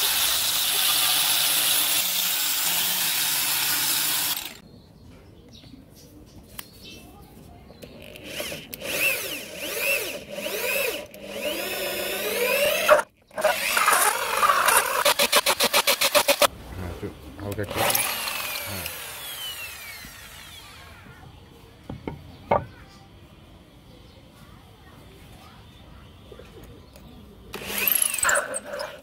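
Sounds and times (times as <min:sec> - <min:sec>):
angle grinder sanding wood: 0:00.0 - 0:04.6, 0:17.7 - 0:21.0
electric drill boring into wood: 0:00.0 - 0:04.6, 0:08.0 - 0:16.5, 0:17.7 - 0:21.0, 0:27.5 - 0:29.0.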